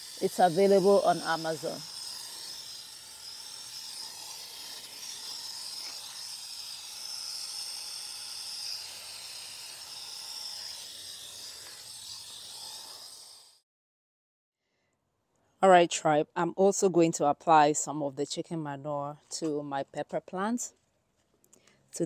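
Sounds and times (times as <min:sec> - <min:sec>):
garden hose spraying water: 0:00.0 - 0:13.6.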